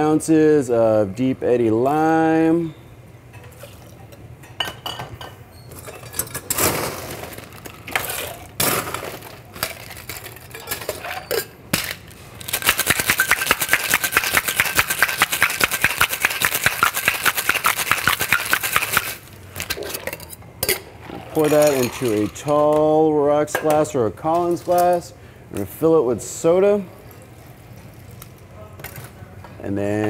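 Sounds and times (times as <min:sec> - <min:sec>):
bar tools and glassware clinking: 0:03.3 - 0:06.6, 0:09.6 - 0:11.9, 0:19.6 - 0:22.9
ice rattling in cocktail shaker: 0:12.4 - 0:20.2, 0:21.3 - 0:22.4.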